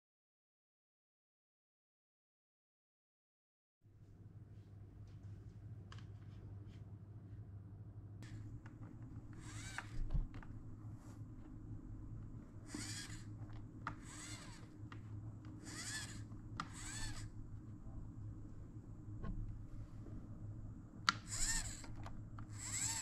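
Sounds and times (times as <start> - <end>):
steady low hum: 4.0 - 23.0
hands scraping toy truck: 12.7 - 13.3, 21.3 - 23.0.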